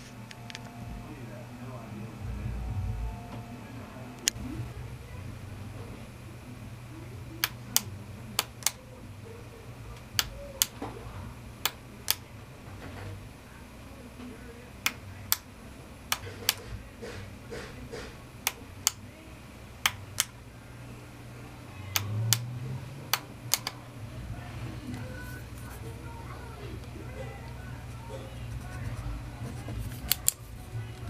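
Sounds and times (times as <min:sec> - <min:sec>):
steady low hum: 0:00.0 - 0:31.0
sharp clicks: 0:07.4 - 0:08.8, 0:11.6 - 0:12.3, 0:19.8 - 0:20.4, 0:21.9 - 0:22.5, 0:23.1 - 0:23.8.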